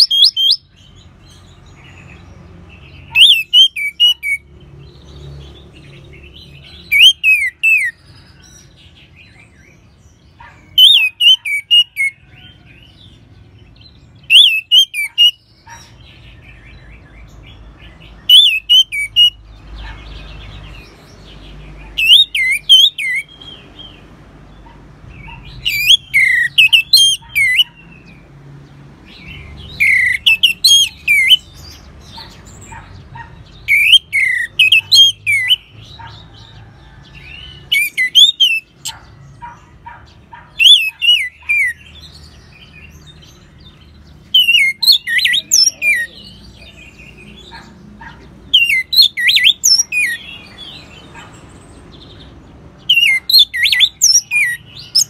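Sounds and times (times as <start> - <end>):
thrush singing whistled phrases: 0.0 - 0.7, 7.0 - 8.0, 10.8 - 12.2, 14.3 - 15.4, 18.2 - 19.4, 22.0 - 23.3, 29.8 - 31.4, 37.7 - 38.9, 44.4 - 46.0.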